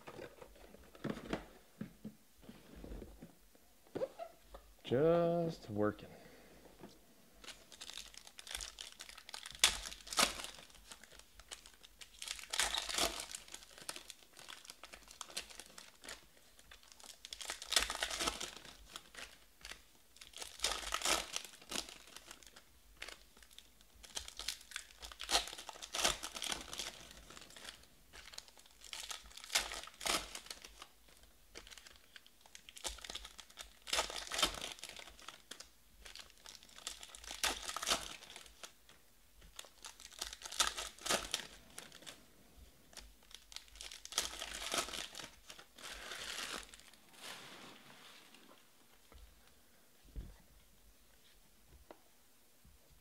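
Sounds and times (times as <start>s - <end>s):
foil wrappers crinkling and tearing: 7.4s - 42.3s, 42.9s - 47.7s.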